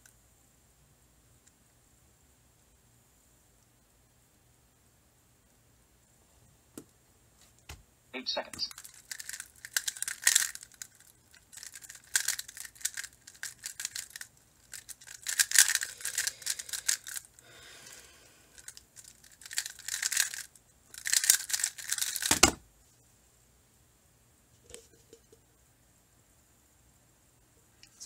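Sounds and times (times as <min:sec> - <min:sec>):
plastic puzzle clicking and scraping: 0:08.6 - 0:18.0, 0:18.6 - 0:22.6.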